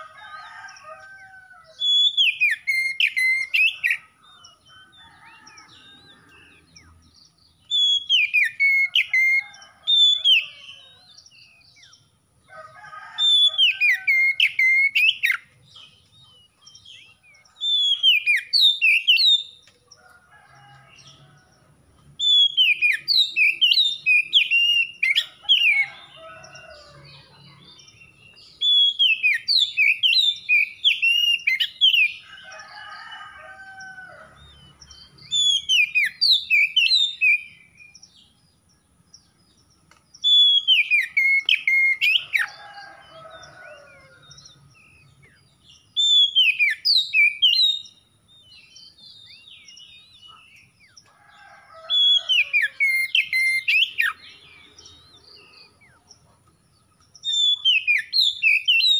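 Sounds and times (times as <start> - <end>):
bird singing whistled phrases: 1.8 - 4.0, 7.7 - 9.4, 22.2 - 25.2, 40.2 - 42.2, 46.0 - 47.8.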